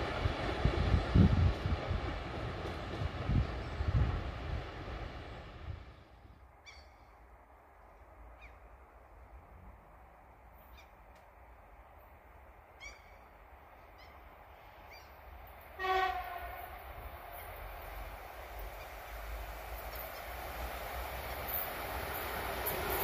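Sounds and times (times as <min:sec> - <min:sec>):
bird calls: 0:06.6 - 0:07.2, 0:12.8 - 0:14.2, 0:14.8 - 0:15.2
distant train horn blast: 0:15.8 - 0:16.9.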